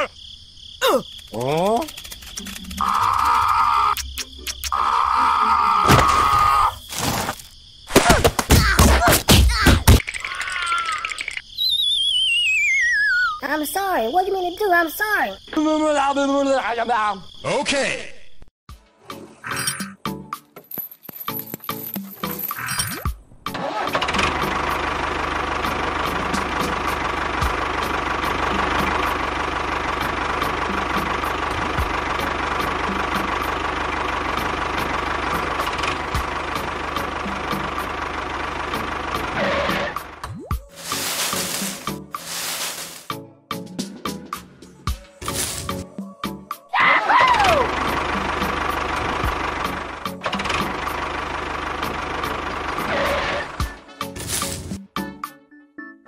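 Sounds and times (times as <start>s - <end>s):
wobbling whistle sliding down: 11.6s - 13.4s
tractor engine idling with knocking: 23.6s - 40.2s, 47.4s - 54.7s.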